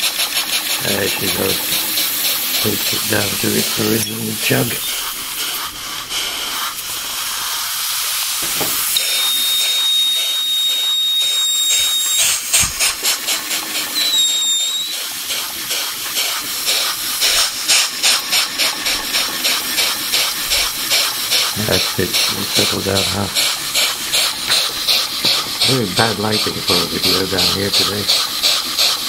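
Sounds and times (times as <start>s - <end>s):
steam engine hiss and chuffs: 0.0s - 29.0s
thin whistling tone: 2.7s - 5.0s, 9.0s - 12.4s, 13.9s - 15.1s.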